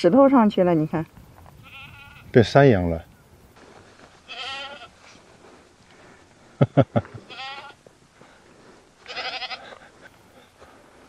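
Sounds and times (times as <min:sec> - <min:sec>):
young goats bleating: 0:01.6 - 0:02.4, 0:04.2 - 0:05.2, 0:07.2 - 0:07.9, 0:09.0 - 0:09.9.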